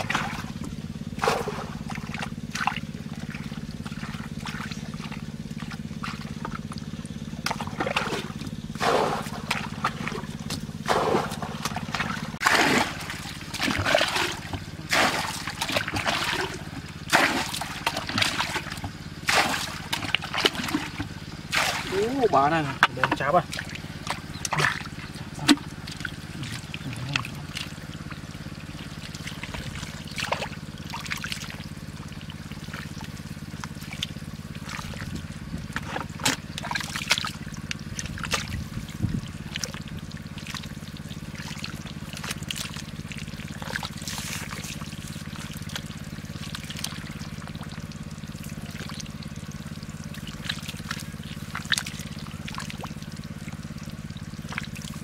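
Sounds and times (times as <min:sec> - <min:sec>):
small splashes and knocks: 0:00.0 - 0:55.0
steady low hum: 0:00.0 - 0:55.0
water trickling and pouring: 0:01.4 - 0:55.0.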